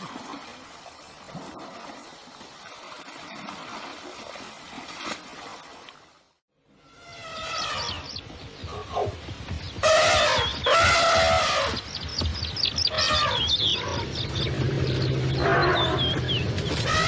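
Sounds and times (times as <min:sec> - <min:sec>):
elephant trumpeting: 0:06.8 - 0:08.0, 0:09.8 - 0:11.8, 0:12.9 - 0:14.1, 0:15.3 - 0:16.2, 0:16.8 - 0:17.0
low steady rumble: 0:08.0 - 0:17.0.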